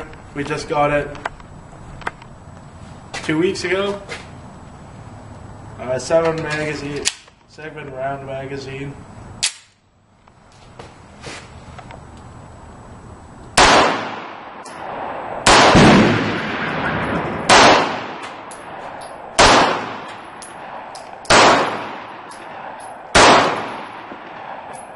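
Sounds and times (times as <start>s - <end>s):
pistol shots with echo: 13.6s - 24.9s.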